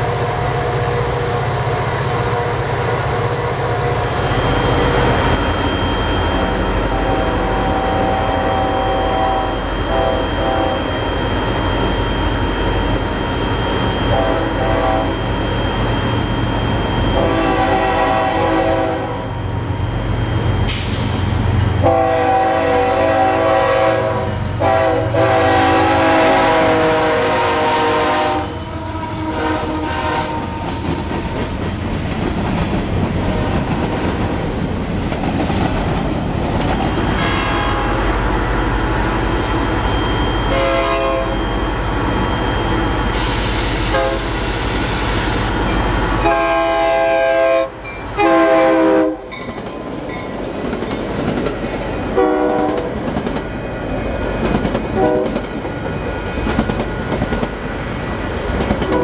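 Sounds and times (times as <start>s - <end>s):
locomotive horn: 6.4s - 11.0s, 14.1s - 15.3s, 17.1s - 19.4s, 21.8s - 30.8s, 37.1s - 38.3s, 40.5s - 41.4s, 43.2s - 45.1s, 46.2s - 49.3s, 52.1s - 53.0s, 55.0s - 55.4s
train wheels clattering on rails: 29.9s - 37.6s, 49.3s - 59.0s.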